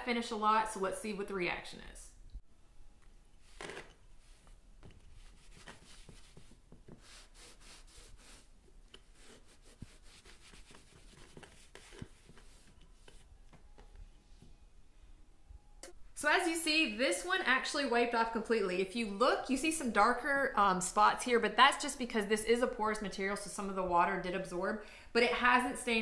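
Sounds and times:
cloth scrubbing stone: 0:05.1 - 0:13.3.

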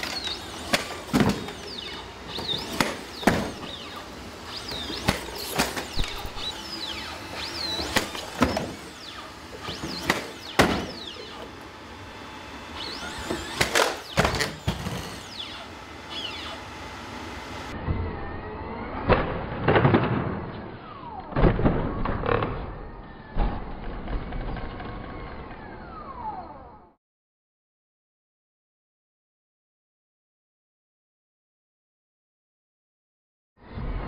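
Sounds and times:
faint rising and falling whines: 0:00.0 - 0:27.0.

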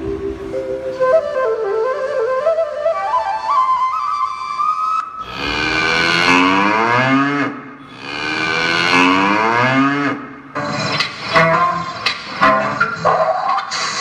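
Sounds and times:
flute-like melody stepping upward: 0:00.1 - 0:06.0
long deep falling cries: 0:05.2 - 0:10.5.

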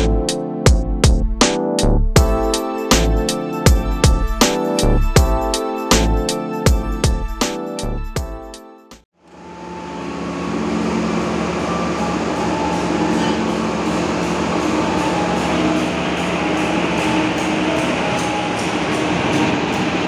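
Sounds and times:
locomotive engine drone: 0:09.2 - 0:20.0.

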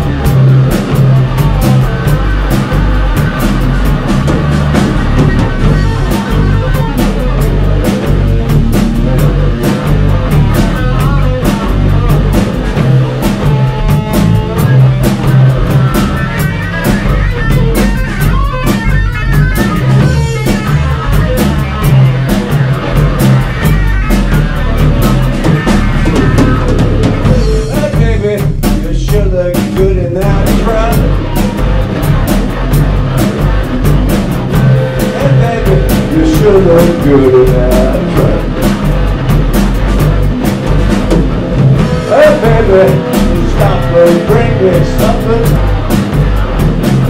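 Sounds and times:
bass guitar: 0:00.0 - 0:47.0
drums with busy cymbals: 0:00.0 - 0:47.0
electric guitar solo: 0:13.5 - 0:27.5.

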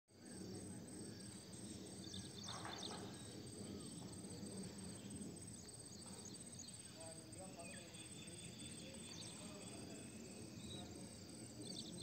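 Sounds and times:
high insect drone: 0:00.1 - 0:12.0
low background noise: 0:00.1 - 0:12.0
bird chirps: 0:02.0 - 0:04.1, 0:05.9 - 0:11.0.

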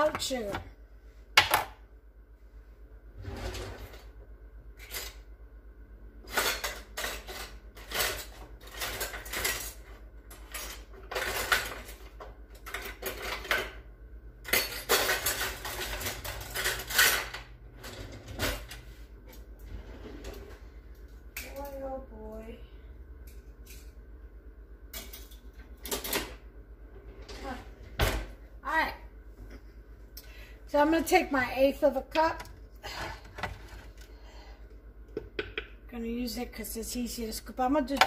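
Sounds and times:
low steady hum: 0:00.0 - 0:38.0
dishes and utensils clattering: 0:06.3 - 0:13.8, 0:14.4 - 0:18.8.

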